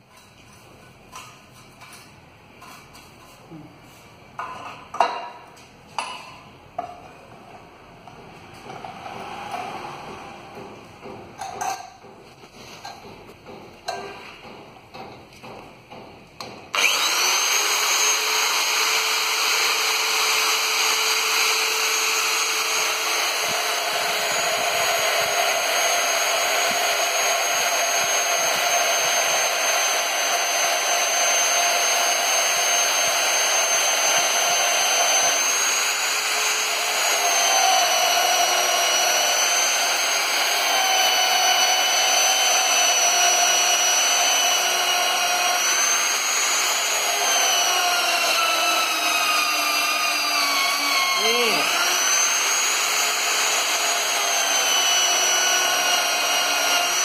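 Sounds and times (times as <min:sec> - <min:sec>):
electric drill drilling into steel: 0:16.7 - 0:57.0.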